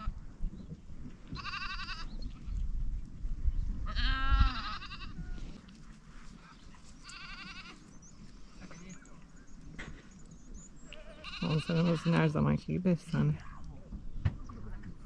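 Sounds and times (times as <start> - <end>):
goats bleating: 1.4 - 2.1, 3.9 - 5.4, 7.0 - 7.9, 10.8 - 12.3.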